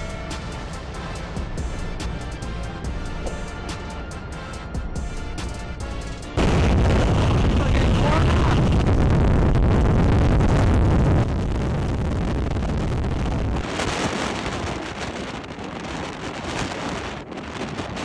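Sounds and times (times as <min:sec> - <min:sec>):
wind buffeting microphone: 0:05.8 - 0:18.0.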